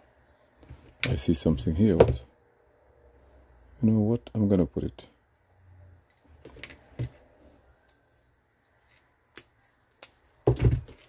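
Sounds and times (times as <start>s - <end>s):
wires being handled: 5.5s - 11.0s.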